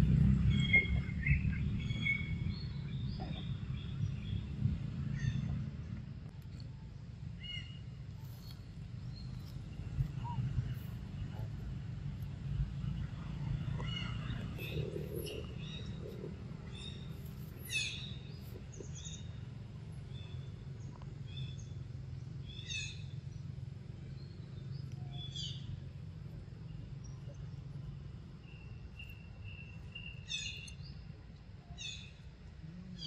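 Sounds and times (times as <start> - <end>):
birds calling: 0.0 - 4.5, 12.8 - 25.8
steady low hum: 0.0 - 33.0.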